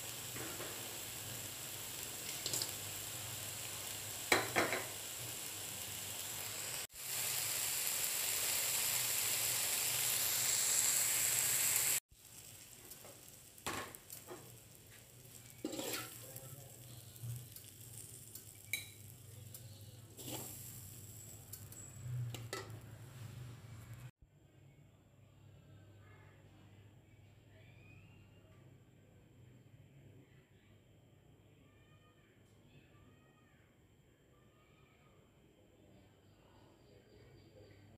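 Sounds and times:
food sizzling in wok: 0:00.0 - 0:24.1
metal spatula scraping wok: 0:15.3 - 0:16.4, 0:20.2 - 0:23.4.

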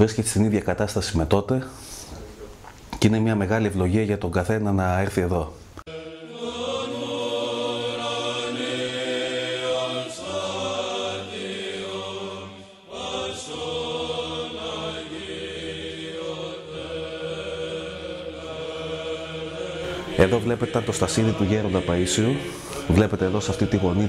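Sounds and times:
men singing a chant: 0:05.9 - 0:24.0.

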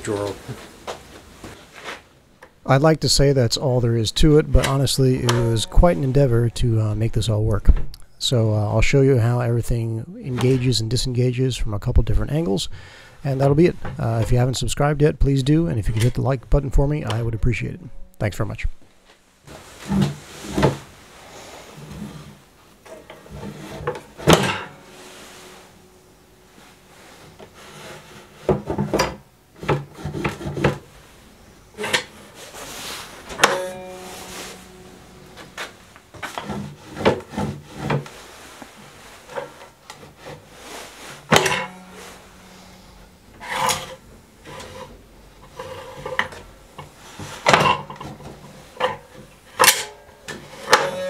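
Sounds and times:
wooden drawers sliding: 0:19.5 - 0:21.0, 0:35.4 - 0:38.2.

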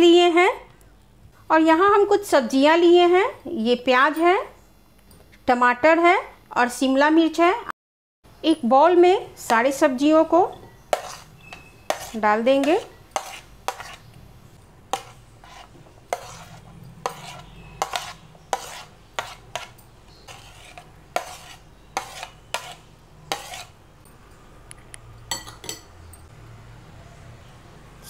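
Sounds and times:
plate clinking against glass: 0:25.3 - 0:25.9
spoon clinking in bowl: 0:25.3 - 0:26.3.

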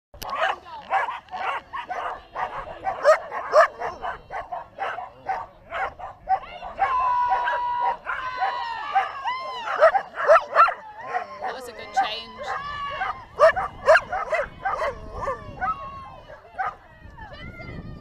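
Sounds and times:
dogs barking rapidly: 0:00.2 - 0:16.8
dog yelps: 0:00.3 - 0:16.8.

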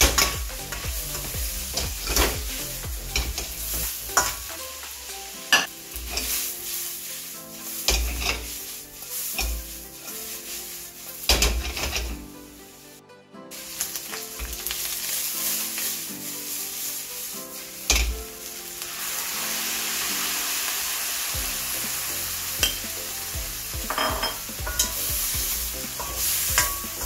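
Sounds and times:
metal ladle scraping wok: 0:00.0 - 0:04.6, 0:05.4 - 0:12.6, 0:23.9 - 0:27.0
food sizzling in a wok: 0:00.0 - 0:27.0
ladle clanking against pan: 0:23.9 - 0:25.1, 0:26.0 - 0:27.0.

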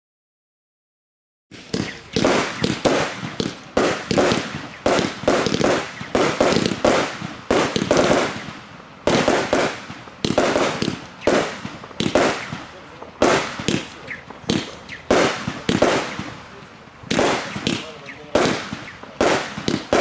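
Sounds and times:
firework battery bangs: 0:01.5 - 0:20.0.

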